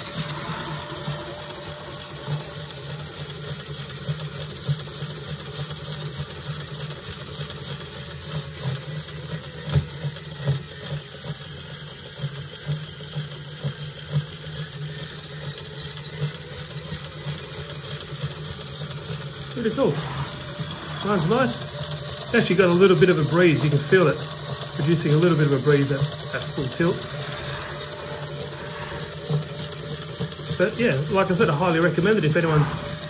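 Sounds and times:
crunchy rattle of fan blades: 0.0 - 6.2, 15.7 - 33.0
model fan spinning fast: 0.0 - 33.0.

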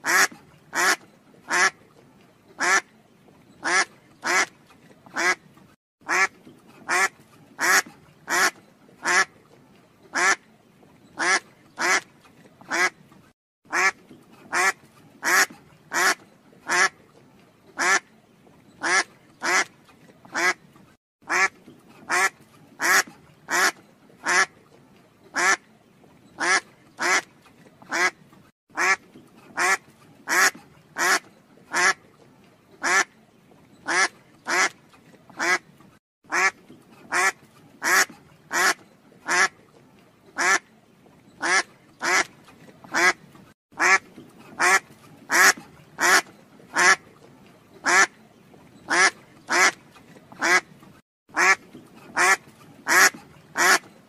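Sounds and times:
duck quacking: 0.0 - 1.8, 2.6 - 2.8, 3.6 - 4.5, 5.2 - 5.4, 6.1 - 9.3, 10.2 - 10.4, 11.2 - 12.0, 12.7 - 12.9, 13.7 - 16.9, 17.8 - 18.0, 18.8 - 19.7, 20.3 - 20.6, 21.3 - 21.5, 22.1 - 24.5, 25.4 - 25.6, 26.4 - 27.3, 27.9 - 28.2, 28.8 - 29.0, 29.6 - 32.0, 32.8 - 33.1, 33.9 - 34.7, 35.4 - 35.6, 36.3 - 39.5, 40.4 - 40.6, 41.4 - 42.3, 42.9 - 43.2, 43.8 - 44.0, 44.6 - 47.0, 47.8 - 48.1, 48.9 - 49.8, 50.4 - 50.6, 51.4 - 53.8.

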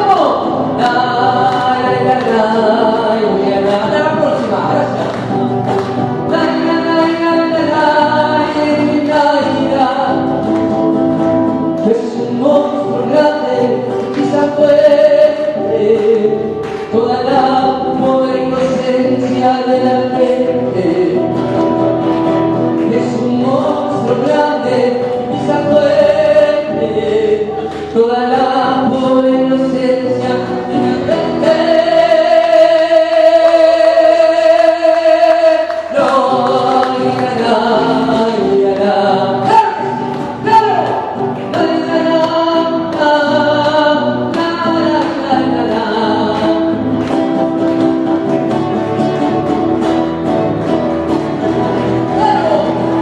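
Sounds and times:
voices singing together: 0.0 - 10.3, 22.8 - 47.1.

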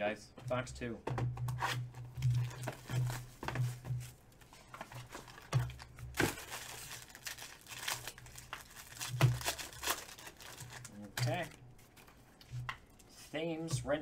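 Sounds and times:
packaging clicks: 5.0 - 12.1
foil wrapper crinkling and tearing: 5.0 - 12.2.

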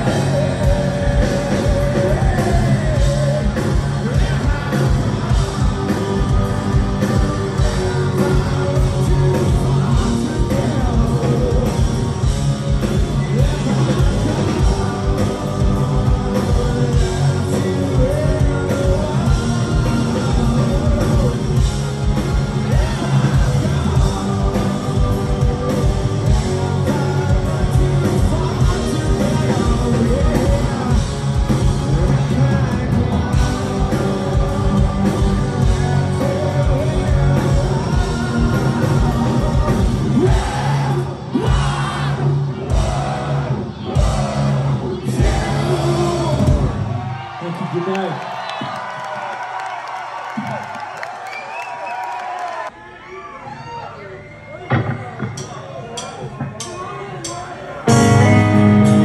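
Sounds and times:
man singing: 0.0 - 43.4, 44.0 - 46.8
bass guitar: 0.0 - 47.3, 57.8 - 59.0
electric guitars: 0.0 - 47.3, 57.8 - 59.0
drums: 0.0 - 59.0.

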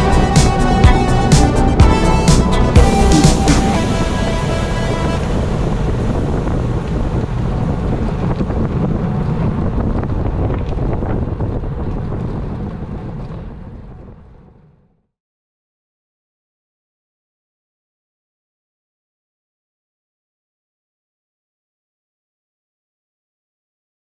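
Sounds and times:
wind buffeting microphone: 0.0 - 14.9.

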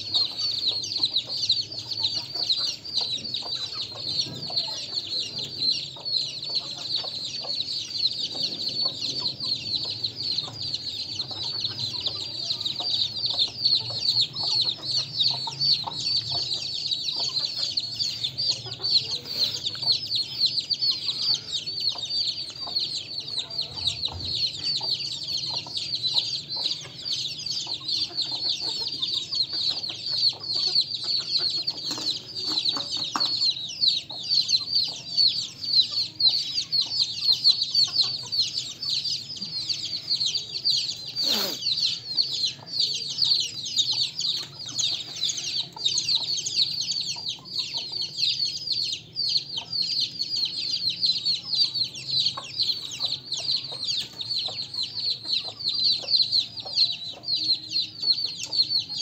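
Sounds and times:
chicks peeping: 0.0 - 59.0
hen clucking: 0.0 - 59.0.

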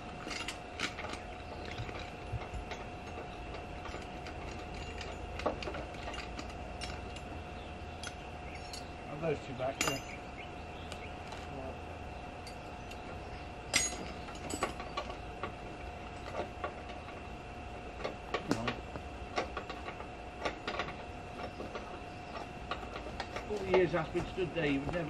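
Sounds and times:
faint steady hum: 0.0 - 25.0
spanners clinking on metal: 0.2 - 7.3, 8.0 - 8.9, 9.7 - 10.2, 13.7 - 15.2.

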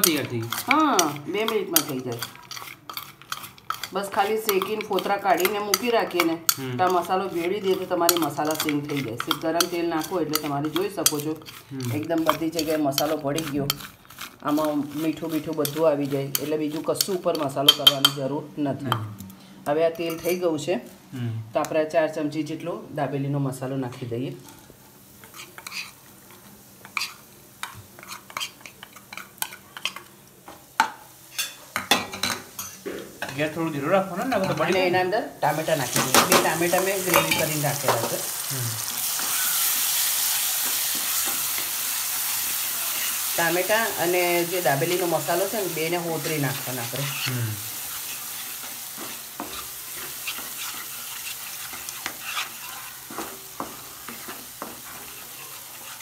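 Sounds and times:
spoon scraping and clinking pan: 0.0 - 11.6, 30.8 - 32.8, 35.9 - 38.2, 46.1 - 56.0
food sizzling in hot oil: 0.0 - 18.3, 23.4 - 56.0.

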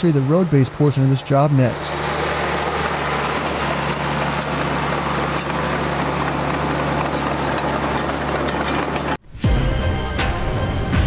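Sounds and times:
bulldozer diesel engine running: 0.0 - 11.0
music: 9.2 - 11.0.

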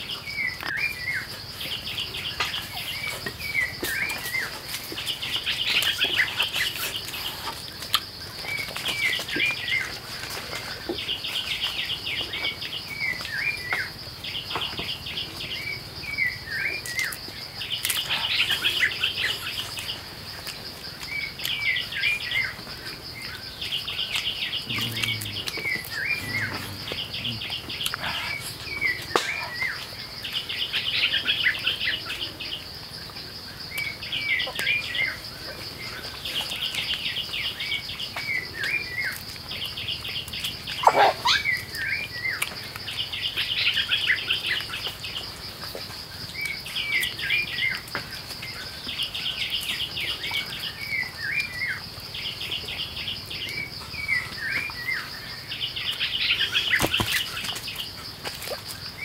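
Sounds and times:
high insect drone: 0.0 - 59.0
bird trilling and chirping: 23.8 - 29.8.

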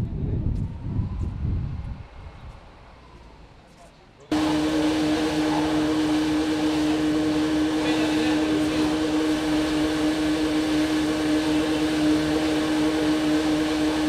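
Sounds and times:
water pump humming: 4.3 - 14.0.

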